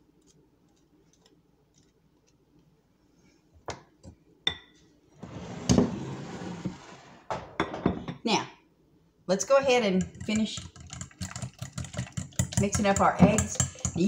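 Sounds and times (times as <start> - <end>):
whisking and scraping in bowl: 9.8 - 14.0
whisk clinking against glass bowl: 10.0 - 14.0.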